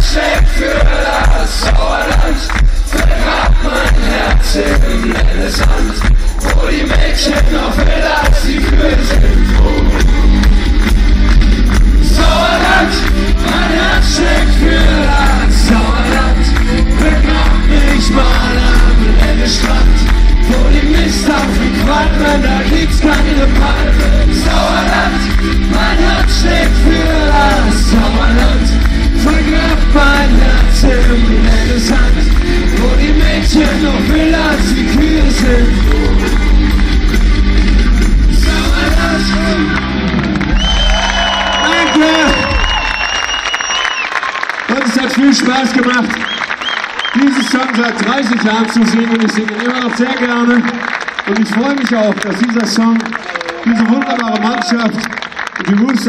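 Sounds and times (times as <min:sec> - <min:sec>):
man singing: 0:00.0 - 0:10.4, 0:12.0 - 0:36.6, 0:38.3 - 0:40.0
crowd voices: 0:00.0 - 0:43.6
live pop-rock song over speakers: 0:00.0 - 0:53.1.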